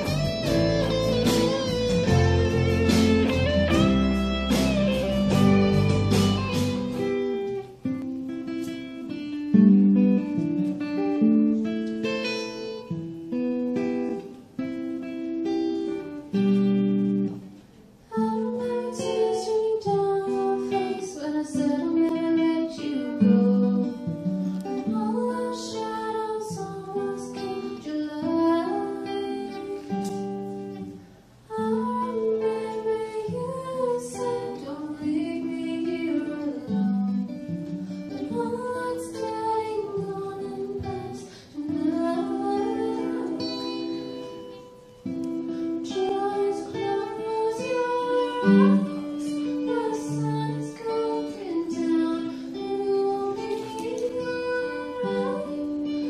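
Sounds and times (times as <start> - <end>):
woman singing: 0.0 - 4.0, 18.1 - 44.6, 45.4 - 56.0
acoustic guitar picking: 0.0 - 56.0.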